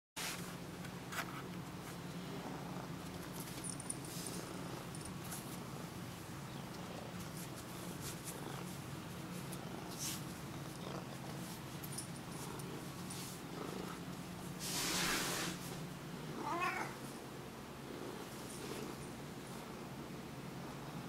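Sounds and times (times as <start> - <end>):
faint brushing sounds: 0.2 - 2.1, 3.3 - 5.9, 6.8 - 15.9, 17.9 - 19.8
cat purring: 6.6 - 14.4.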